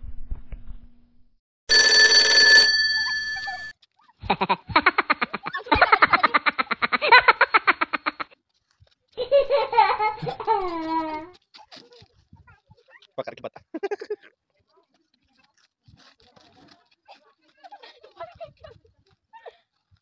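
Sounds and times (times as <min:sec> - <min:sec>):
short bell-like ringing: 0:01.7 - 0:03.7
rapid laughter-like pulsing: 0:04.2 - 0:08.4, 0:09.2 - 0:11.3, 0:13.6 - 0:14.3.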